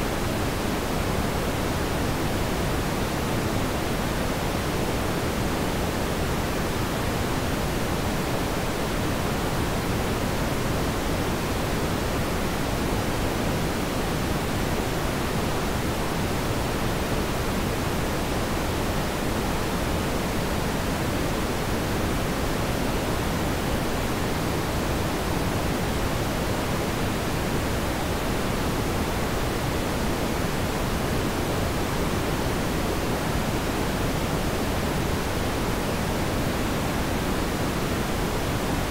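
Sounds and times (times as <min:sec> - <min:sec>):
steady broadband hiss: 0:00.0 - 0:38.9.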